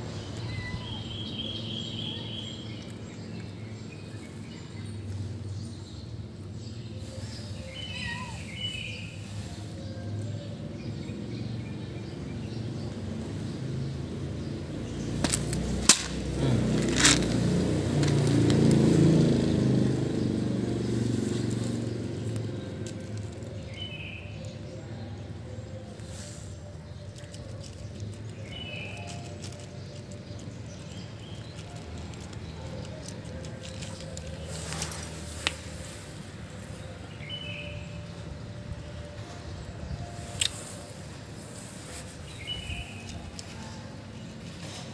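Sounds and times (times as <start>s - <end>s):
vehicle engine rumbling: 0.0s - 44.9s
cats crunching dry kibble: 15.2s - 20.0s, 21.2s - 24.7s, 26.2s - 36.2s, 41.7s - 44.9s.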